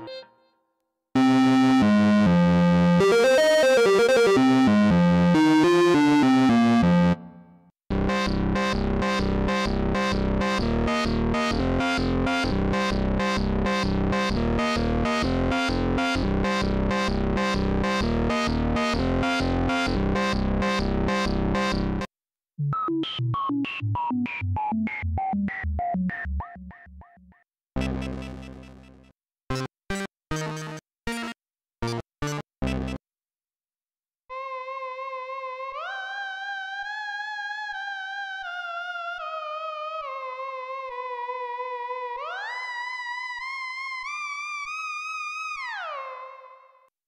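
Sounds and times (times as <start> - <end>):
pulsing synthesizer sequence: 1.2 - 7.3, 8.0 - 22.0
synthesizer lead melody: 1.2 - 22.1.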